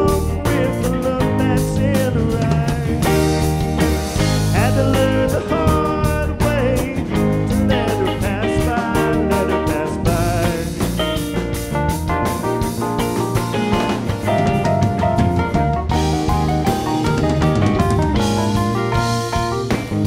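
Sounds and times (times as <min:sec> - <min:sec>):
lead vocal: 0:00.0 - 0:11.7
live rock band playing: 0:00.0 - 0:20.0
rising guitar slide: 0:02.4 - 0:20.0.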